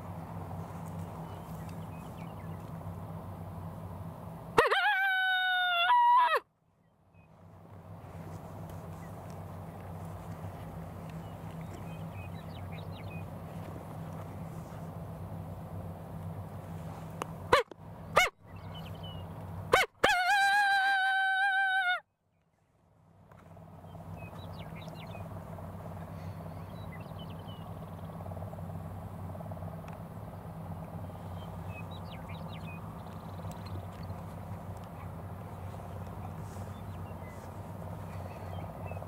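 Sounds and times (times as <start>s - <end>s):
coyote call howl: 4.6s - 6.5s, 19.7s - 22.1s
coyote call yelps: 4.6s - 6.5s, 17.5s - 18.4s, 19.7s - 22.0s.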